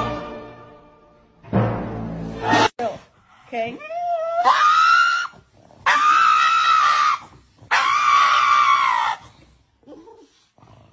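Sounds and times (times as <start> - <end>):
dog screaming: 4.2 - 9.4.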